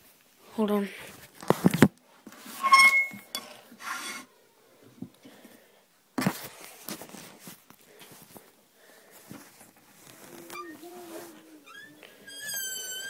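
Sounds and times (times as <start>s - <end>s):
rubbing and scraping: 2.4s - 4.3s
short squeak: 2.6s - 4.3s, 10.5s - 10.9s, 11.7s - 13.0s.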